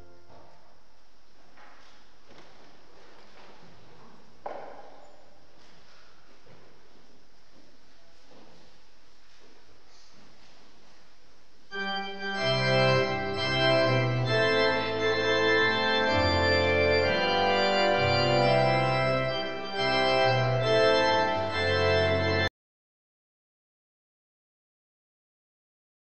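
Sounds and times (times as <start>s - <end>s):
church organ chords: 0.0s - 0.9s, 11.7s - 22.5s
faint room hiss: 0.0s - 22.3s.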